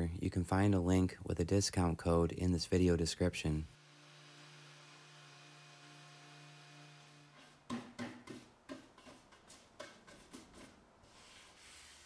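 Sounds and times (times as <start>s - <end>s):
bristle brush sweeping wood: 8.3s - 12.0s.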